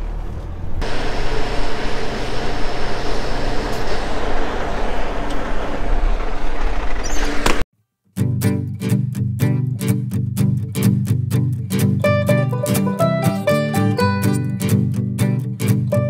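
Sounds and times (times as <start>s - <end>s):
diesel truck engine running: 0.0s - 7.6s.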